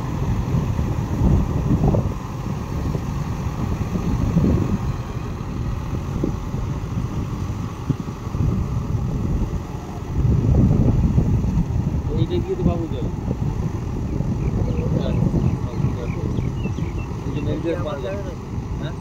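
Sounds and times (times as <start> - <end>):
tractor diesel engine running: 0.0 - 19.0.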